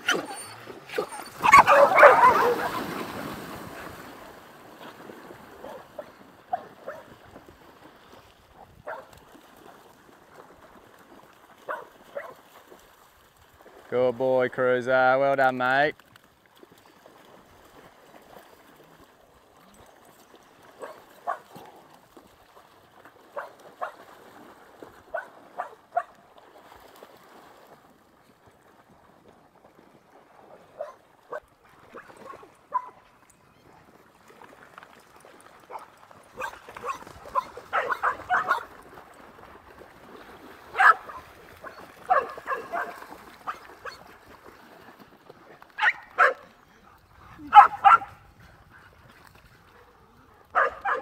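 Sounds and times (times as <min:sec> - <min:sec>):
dogs barking: 0:00.0 - 0:02.9, 0:05.6 - 0:07.1, 0:08.8 - 0:09.1, 0:11.7 - 0:12.4, 0:20.8 - 0:21.6, 0:25.1 - 0:26.1, 0:30.8 - 0:31.4, 0:32.2 - 0:33.0, 0:35.7 - 0:38.7, 0:40.7 - 0:44.0, 0:45.8 - 0:46.4, 0:47.4 - 0:48.2, 0:50.5 - 0:51.0.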